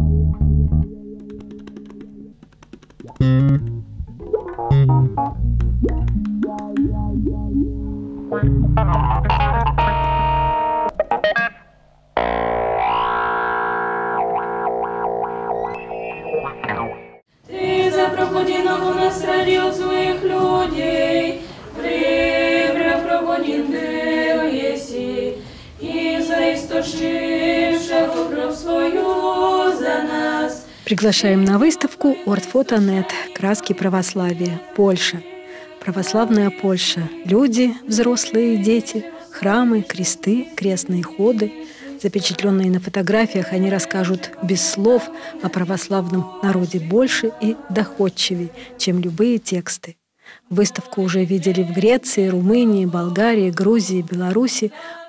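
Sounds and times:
instrumental theme music: 0.0 - 17.2
guitar jingle: 3.2 - 17.2
girls singing in harmony: 17.4 - 49.0, 50.5 - 55.0.

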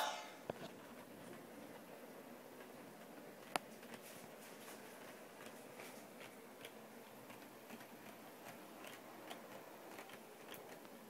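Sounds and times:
model train clicking on track: 6.2 - 11.0.

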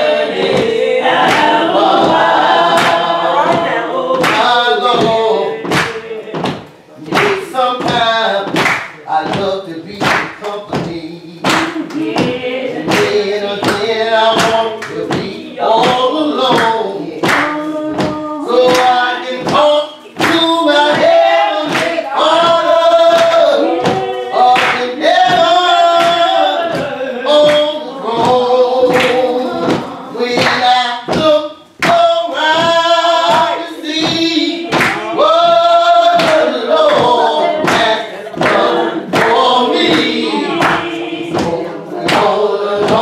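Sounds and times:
gospel choir singing: 0.0 - 43.0
sharp beats keeping time: 9.3 - 28.9.

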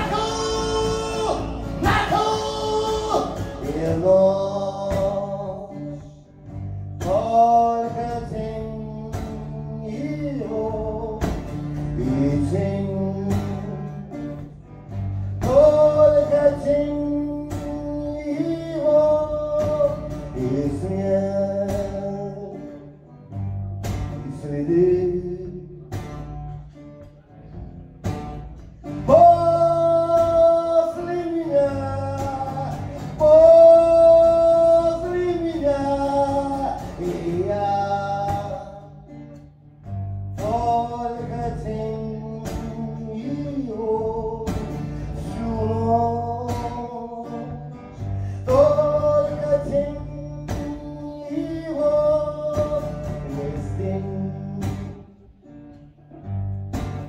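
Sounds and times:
man singing long notes: 0.0 - 6.2, 29.0 - 39.0
acoustic guitar strumming: 0.0 - 57.0.

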